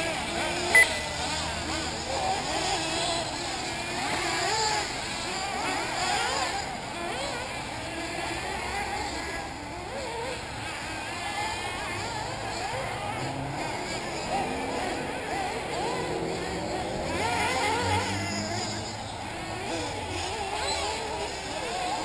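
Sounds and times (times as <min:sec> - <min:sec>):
model car engines whining: 0:00.0 - 0:22.0.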